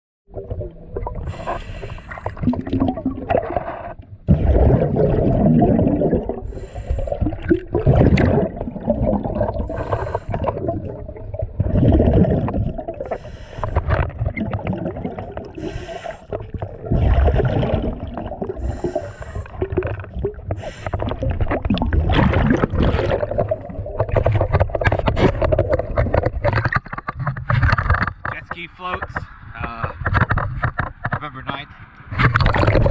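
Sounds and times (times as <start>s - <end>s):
bubbling exhalations: 0.3s - 27.2s, 32.2s - 32.9s
hissing regulator inhalations: 1.3s - 2.4s, 6.4s - 7.3s, 9.7s - 10.6s, 15.6s - 16.4s, 18.6s - 19.7s, 20.5s - 21.2s.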